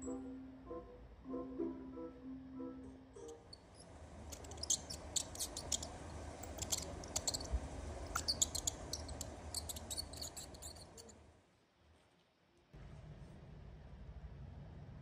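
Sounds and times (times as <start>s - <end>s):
low steady hum: 0.0s - 15.0s
mice squeaking: 3.2s - 11.2s.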